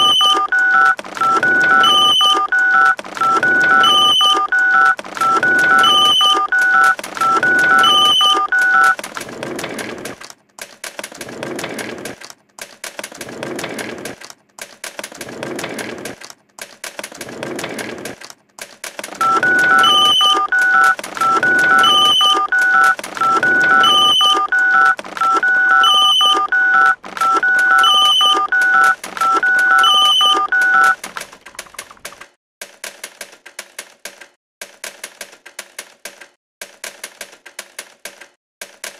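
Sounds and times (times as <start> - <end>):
electronic telephone-like beeping: 0.0 - 9.0, 19.2 - 31.0
typewriter-like clicking: 0.0 - 25.6, 26.2 - 38.9
irregular noisy clatter: 0.2 - 25.5.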